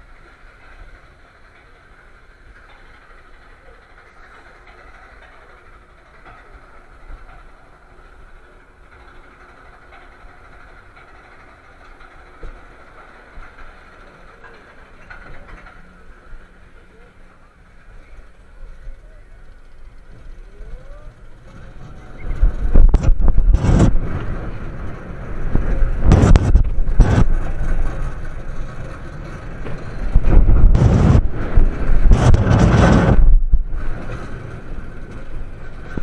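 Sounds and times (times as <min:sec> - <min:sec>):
roller coaster wheels rumbling: 0:00.0 - 0:36.0
wind rushing over microphone: 0:21.8 - 0:36.0.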